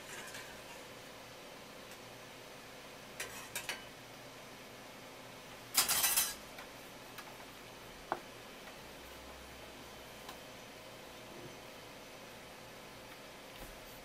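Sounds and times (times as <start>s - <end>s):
dishes clattering: 3.2s - 3.9s, 5.8s - 6.4s
tableware clinking: 3.2s - 3.9s, 5.8s - 6.4s.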